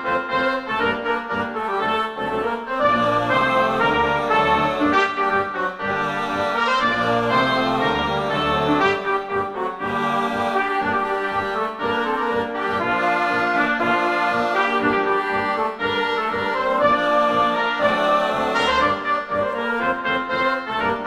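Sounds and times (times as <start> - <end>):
brass background music: 0.0 - 21.0.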